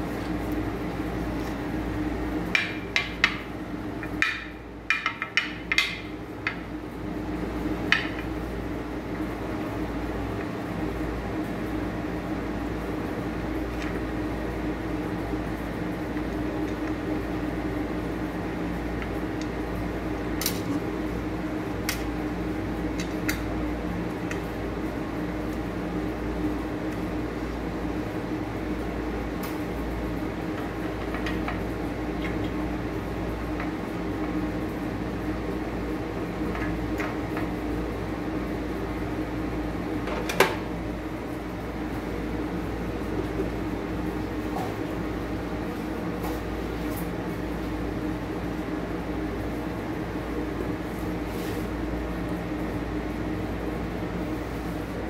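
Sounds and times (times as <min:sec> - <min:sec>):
steady mechanical hum: 0:00.0 - 0:55.0.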